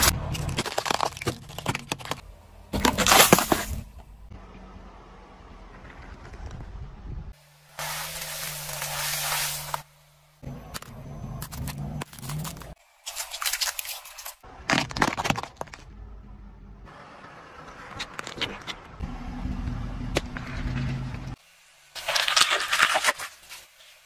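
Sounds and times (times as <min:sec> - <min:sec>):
loud crunch: 0:00.0 - 0:04.0, 0:10.8 - 0:15.9
crackling and scraping: 0:00.0 - 0:04.3, 0:05.6 - 0:07.0, 0:07.7 - 0:16.4, 0:17.6 - 0:19.0, 0:22.0 - 0:24.0
tyre and engine rumble: 0:00.0 - 0:12.8, 0:14.3 - 0:21.4
plastic toys cracking: 0:00.2 - 0:03.8.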